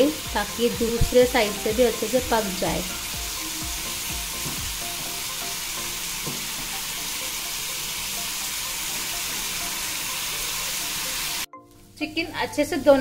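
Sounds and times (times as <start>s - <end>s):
chicken sizzling in a pan: 0.0s - 12.0s
spatula knocking against pan: 4.4s - 5.2s, 6.2s - 6.8s.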